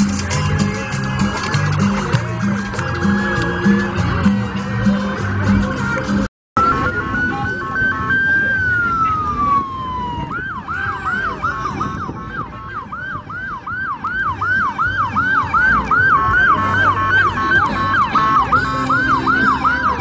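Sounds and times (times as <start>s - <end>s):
electronic vehicle siren: 6.6s - 20.0s.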